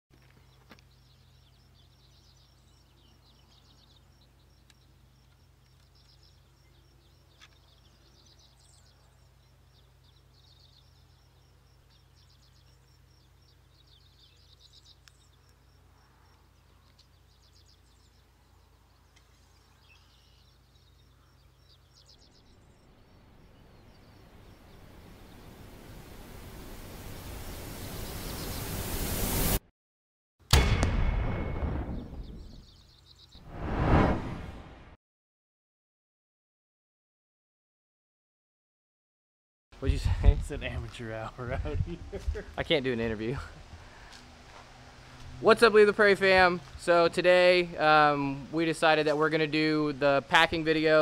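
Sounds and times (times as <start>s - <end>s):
rushing hiss: 25.7s - 29.6s.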